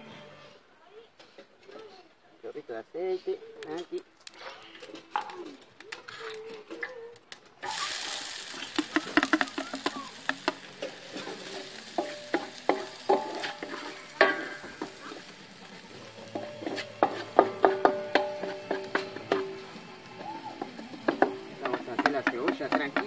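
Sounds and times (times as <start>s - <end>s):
spatula scraping and clinking on pan: 7.6s - 23.0s
vegetables sizzling in hot oil: 7.6s - 23.0s.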